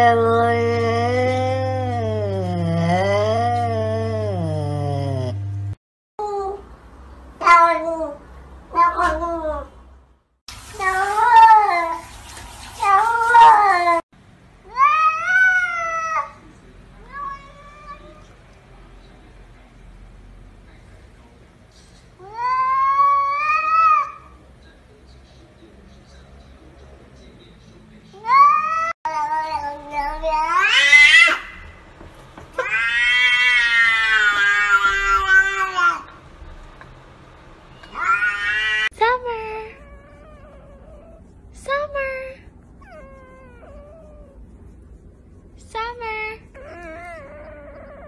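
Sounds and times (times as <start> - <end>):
cats meowing: 28.2 - 31.7, 32.6 - 36.1, 37.8 - 38.9.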